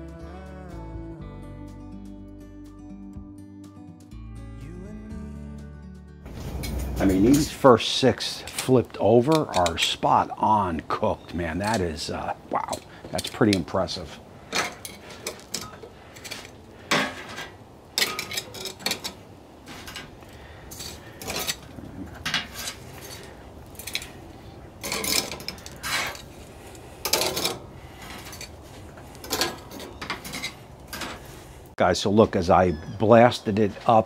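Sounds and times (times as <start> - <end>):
metal tongs clinking on grates: 6.6 - 7.6, 8.2 - 10.0, 12.6 - 20.1, 20.7 - 24.2, 24.8 - 26.3, 27.0 - 28.6.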